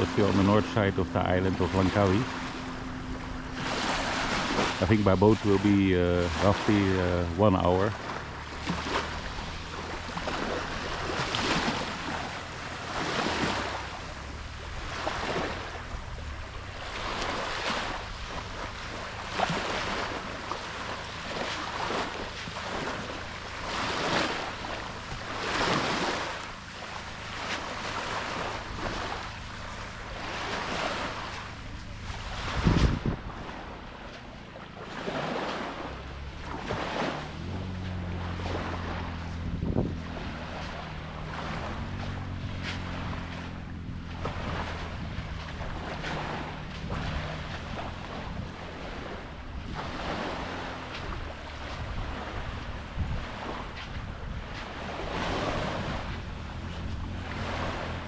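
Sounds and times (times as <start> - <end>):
small waves washing onto sand: 0.0 - 58.0
wind on microphone: 28.1 - 34.2, 36.4 - 58.0.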